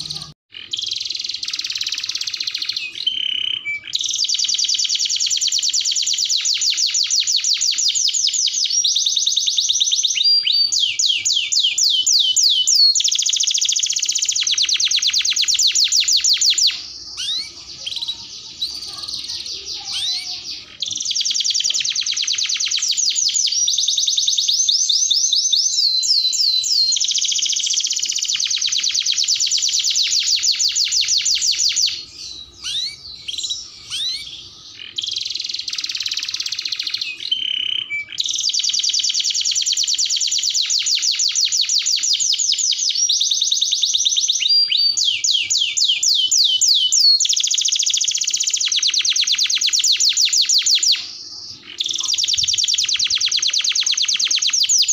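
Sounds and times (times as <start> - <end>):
canary singing trills: 0.0 - 54.9.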